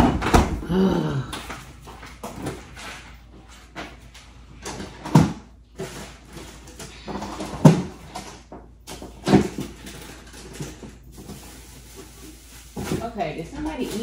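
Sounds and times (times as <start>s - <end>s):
doors and drawers opening and closing: 0.0s - 0.7s, 3.7s - 11.1s
refrigerator door opening: 0.0s - 0.9s
things being moved about: 0.0s - 14.0s.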